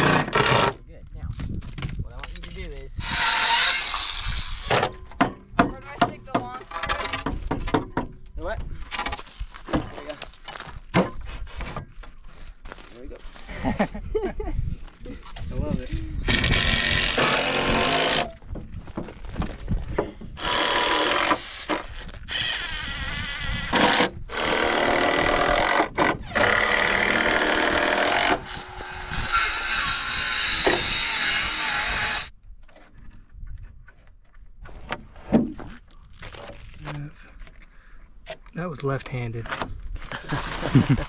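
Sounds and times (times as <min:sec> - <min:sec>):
circular saw cutting wood: 0:03.0 - 0:04.7, 0:16.3 - 0:18.4, 0:20.4 - 0:32.3.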